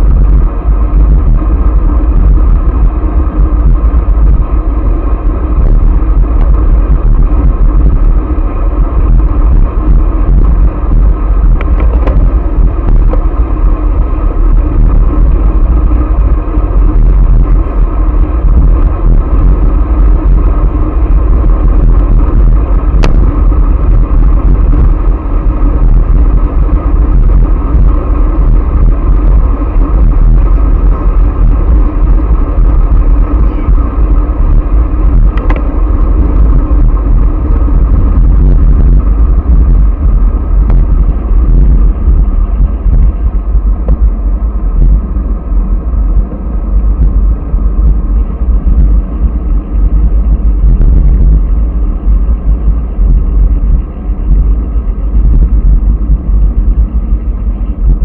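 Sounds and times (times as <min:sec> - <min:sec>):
tyre and road noise: 0:00.0 - 0:58.0
wind buffeting microphone: 0:00.0 - 0:58.0.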